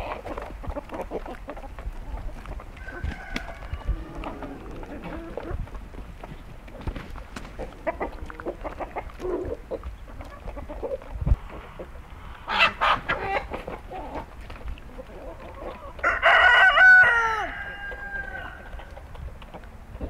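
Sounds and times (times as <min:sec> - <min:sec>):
chickens clucking: 0:00.0 - 0:20.0
rooster crowing: 0:02.8 - 0:04.8, 0:16.0 - 0:18.8.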